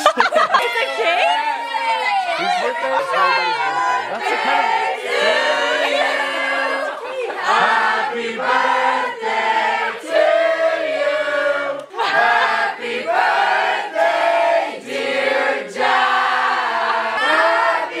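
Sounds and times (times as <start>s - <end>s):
people shouting: 0.0s - 8.0s
group singing loudly: 2.4s - 18.0s.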